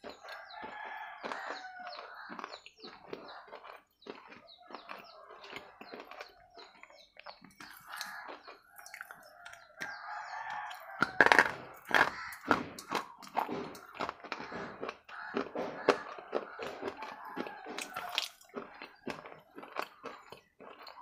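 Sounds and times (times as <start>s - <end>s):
crunching and chewing: 0.0s - 21.0s
bird calling: 6.3s - 18.1s.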